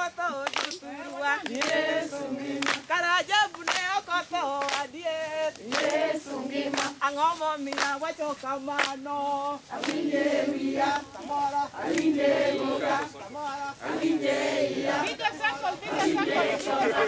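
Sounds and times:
hand claps: 0.0 - 10.2, 10.8 - 11.1, 11.8 - 12.2
group of voices singing: 0.0 - 17.0.

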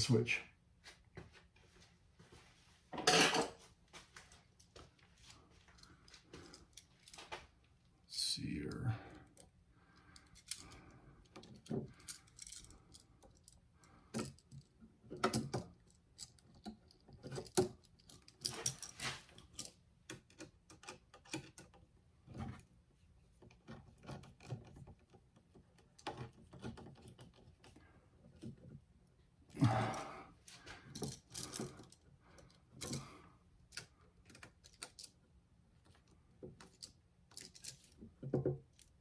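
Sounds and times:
clicks and scrapes of wiring work: 14.1 - 28.8, 30.5 - 39.0.

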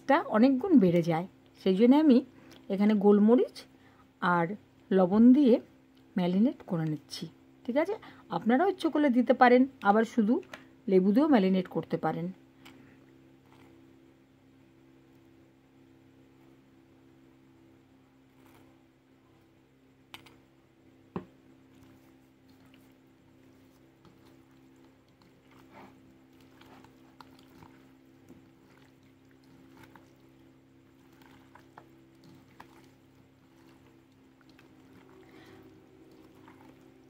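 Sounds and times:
steady low hum: 0.0 - 37.0
hands squelching raw chicken: 21.8 - 37.0.

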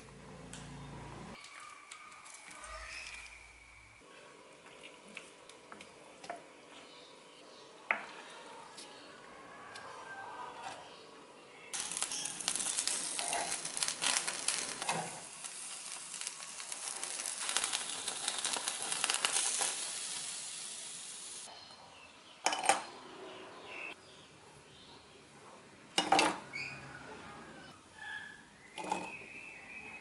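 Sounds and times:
chicken sizzling and crackling: 11.7 - 21.5.

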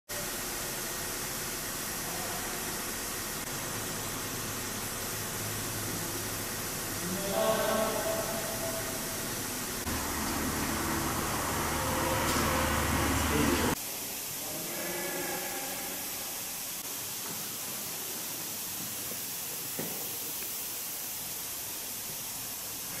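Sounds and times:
airy machinery hiss: 0.2 - 23.0
low hum: 2.0 - 13.8.

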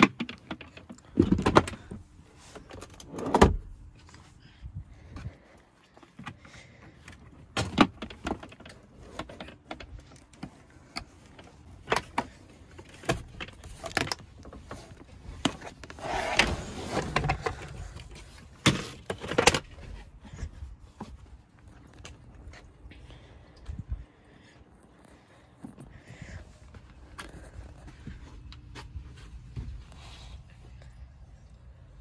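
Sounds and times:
seat latches clicking and clunking: 0.0 - 3.8, 7.4 - 20.0.

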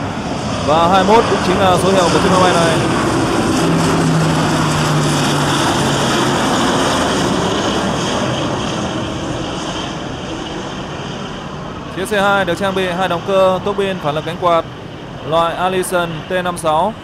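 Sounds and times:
turboprop aircraft propeller drone: 0.0 - 17.0.

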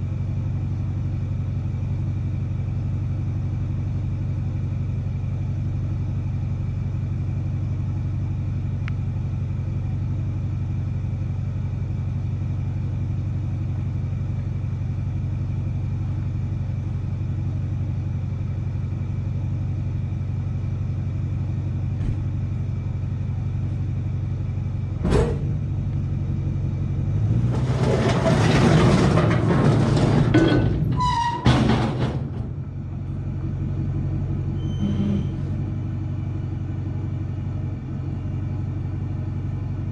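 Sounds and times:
engine idling: 0.0 - 39.9
steel scraping and clanking: 27.3 - 32.6
metal squeal: 27.6 - 32.3, 34.5 - 35.7.

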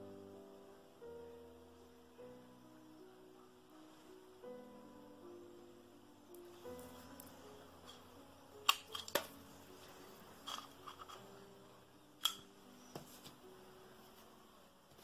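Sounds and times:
faint background music: 0.0 - 15.0.

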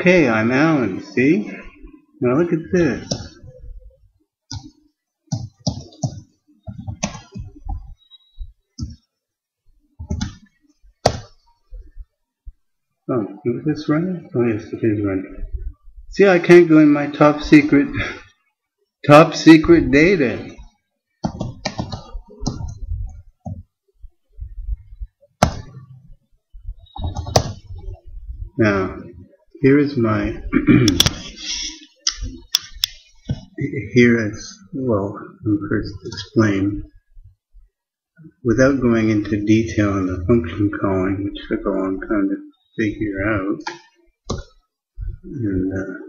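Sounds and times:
keyboard typing: 5.3 - 8.0, 10.0 - 11.3, 21.2 - 23.6, 26.8 - 28.0
computer keyboard typing: 21.2 - 22.8.

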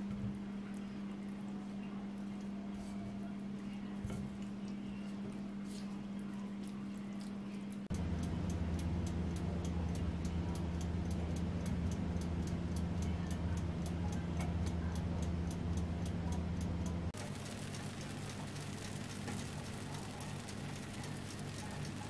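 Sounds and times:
oven humming: 7.6 - 22.0
mechanical timer ticking: 7.8 - 22.0.

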